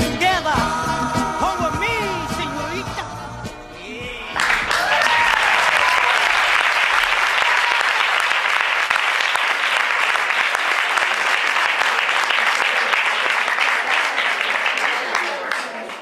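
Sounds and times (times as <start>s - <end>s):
audience applauding: 4.3s - 16.0s.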